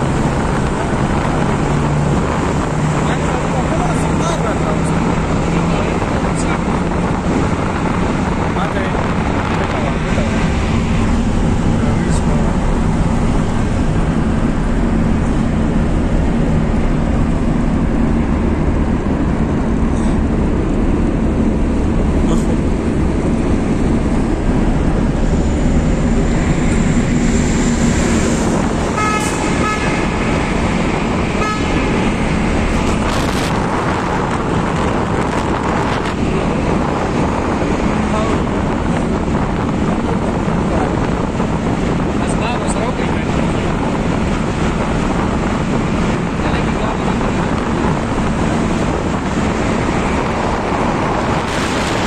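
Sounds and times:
car road and engine noise: 0.0 - 52.0
vehicle horn: 28.9 - 30.2, 31.3 - 31.9.

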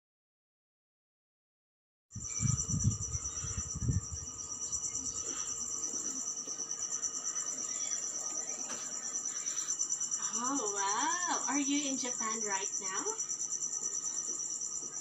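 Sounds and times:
crickets trilling: 2.2 - 15.0.

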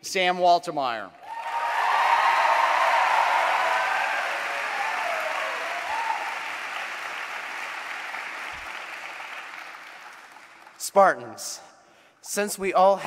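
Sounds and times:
audience applauding: 1.2 - 10.9.

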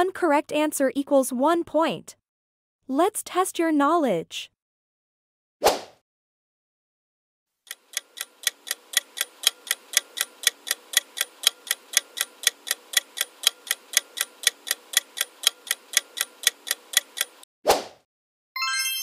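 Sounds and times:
countdown timer ticking: 7.7 - 17.4.

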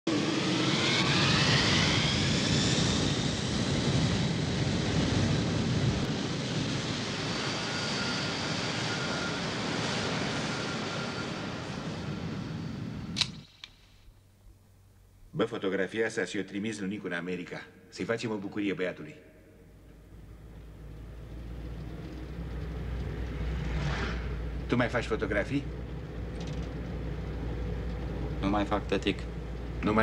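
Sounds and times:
jet engine rushing: 0.1 - 13.8, 20.1 - 30.0
jet engine whine: 0.1 - 14.3, 19.3 - 30.0.

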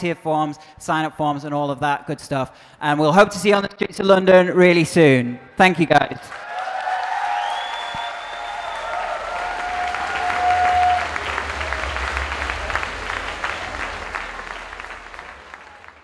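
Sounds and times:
audience applauding: 6.3 - 16.0
long held pitched call: 7.4 - 16.0.

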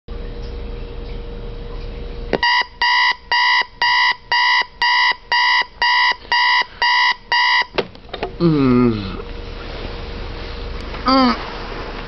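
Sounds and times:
electronic alarm beeping: 2.4 - 7.8.

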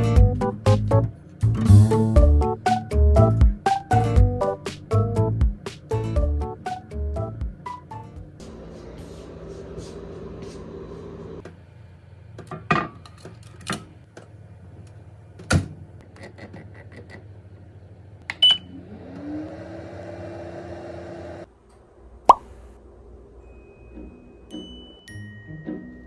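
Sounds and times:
microwave fan motor humming: 17.4 - 23.3.

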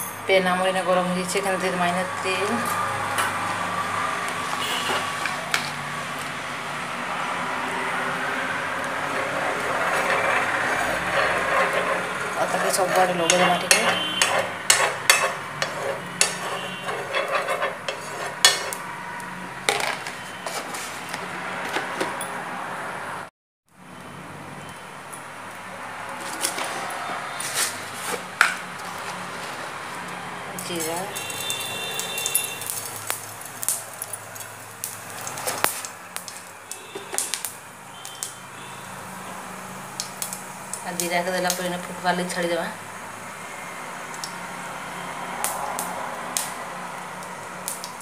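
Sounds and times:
oil sizzling: 0.7 - 22.0, 26.2 - 48.0
seeds popping in hot oil: 8.8 - 20.2, 30.6 - 38.6, 39.8 - 42.0, 45.4 - 48.0
spoon scraping a frying pan: 9.0 - 18.9, 19.6 - 22.2.

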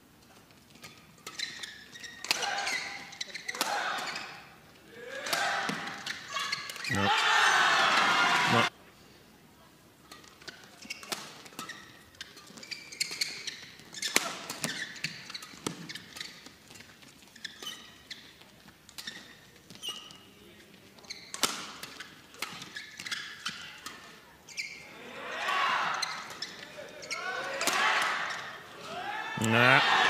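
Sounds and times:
shoes squeaking on court: 0.3 - 4.7, 5.3 - 7.1, 10.1 - 25.0, 25.7 - 29.8
racket striking shuttlecock: 5.2 - 6.9.

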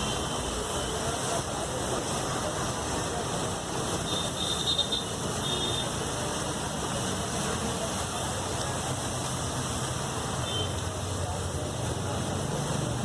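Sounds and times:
rice sizzling on a griddle: 0.0 - 13.0
street noise: 0.0 - 13.0.

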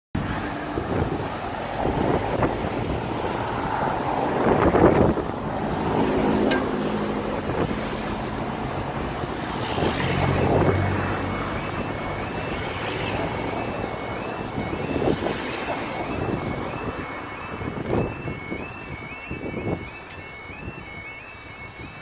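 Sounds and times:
road traffic passing: 0.2 - 22.0
wind buffeting microphone: 0.2 - 22.0
high-pitched sound: 9.6 - 22.0.

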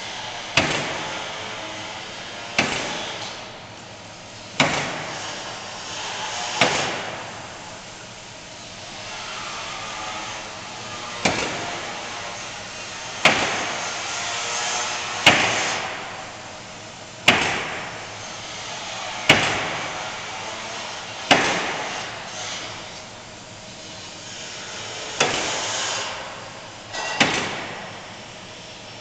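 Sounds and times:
nail gun shots: 0.6 - 1.0, 2.6 - 3.2, 4.6 - 5.1, 6.6 - 7.2, 13.2 - 13.8, 15.2 - 16.0, 17.3 - 17.9, 19.3 - 19.9, 21.3 - 22.0, 25.2 - 25.8, 27.0 - 27.9
pneumatic hiss: 4.3 - 7.4, 17.2 - 29.0.

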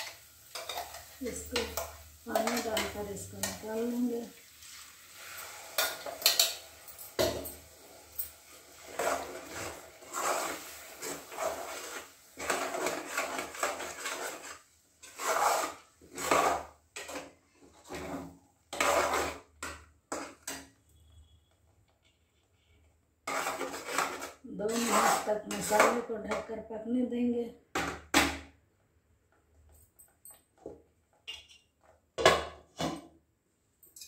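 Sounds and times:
steel ladle scraping a pot: 0.0 - 3.6, 7.8 - 21.2, 23.2 - 26.1.

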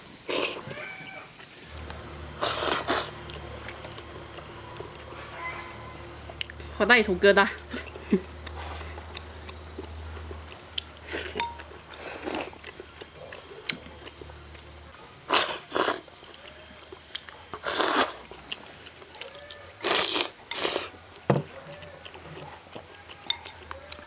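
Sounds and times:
person chewing: 1.7 - 6.7, 7.6 - 24.0
noisy noodle slurps: 2.4 - 3.8, 15.3 - 16.1, 17.6 - 18.4.

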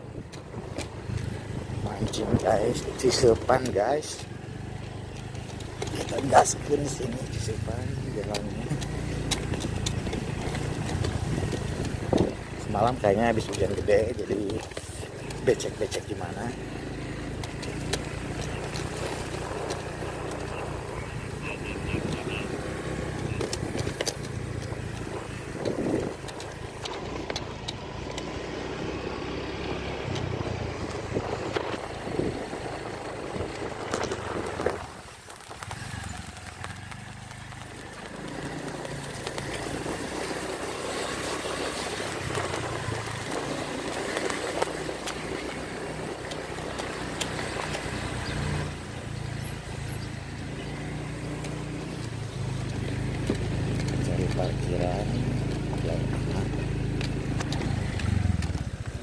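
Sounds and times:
motorcycle engine running: 0.0 - 59.0
knocks and rattles from bumps: 5.1 - 16.6.

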